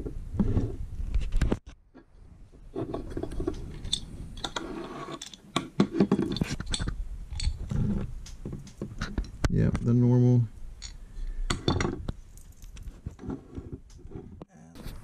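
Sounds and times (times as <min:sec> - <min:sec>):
gun parts clicking and scraping on table: 0:02.7 - 0:09.4.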